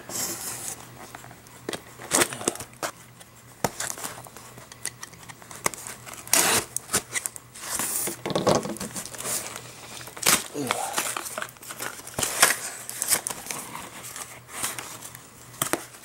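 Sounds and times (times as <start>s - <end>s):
cardboard tearing: 6.1s - 8.1s
cardboard crackles and taps: 11.0s - 16.0s.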